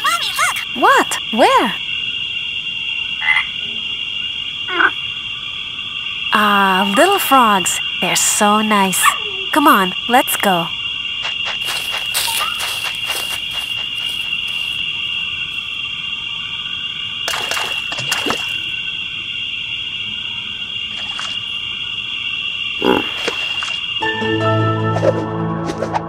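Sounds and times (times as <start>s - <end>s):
high insect trill: 0.0s - 26.0s
frog croaks: 3.0s - 19.4s, 22.6s - 24.0s
music: 24.0s - 26.0s.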